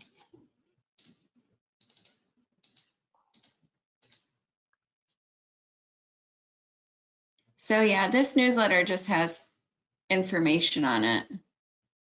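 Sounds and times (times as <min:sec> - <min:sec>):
computer mouse and keyboard clicking: 0:01.0 - 0:04.3.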